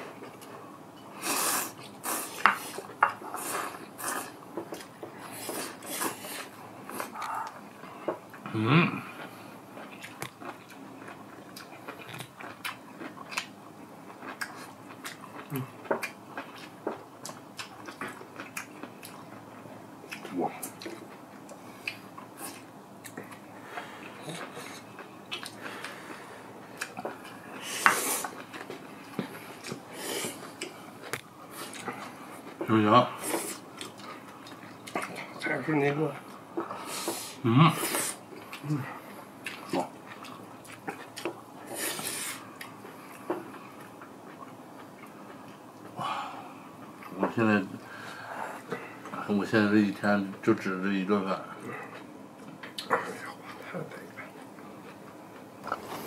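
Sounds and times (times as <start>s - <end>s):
slurping and chewing noodles: 1.2s - 7.6s, 36.6s - 46.0s.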